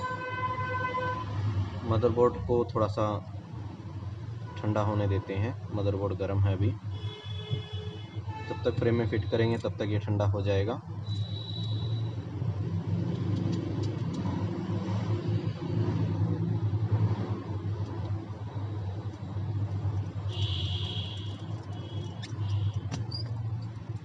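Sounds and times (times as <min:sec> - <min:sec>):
faint clicks and taps: 0:13.1 - 0:14.4, 0:21.2 - 0:24.0.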